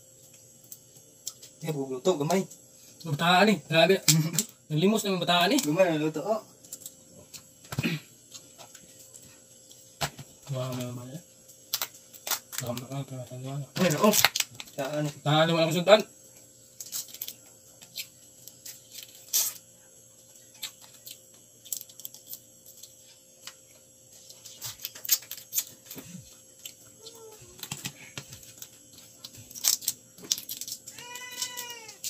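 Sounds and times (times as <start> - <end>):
crab shell cracking: 11.7 - 12.9, 13.8 - 14.8, 28.6 - 32.0.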